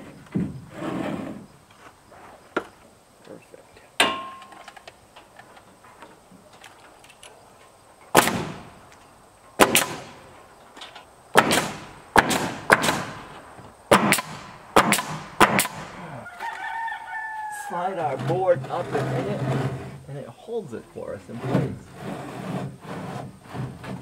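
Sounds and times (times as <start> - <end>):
pneumatic nail gun firing: 8.1 - 8.8, 9.6 - 10.3, 11.3 - 16.0.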